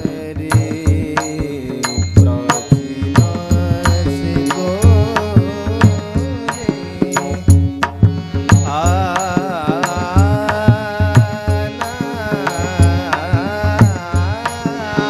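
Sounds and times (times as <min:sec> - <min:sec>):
steady hand drum beat: 0:00.0 - 0:08.8
harmonium: 0:00.0 - 0:15.0
man singing devotional melody: 0:00.0 - 0:15.0.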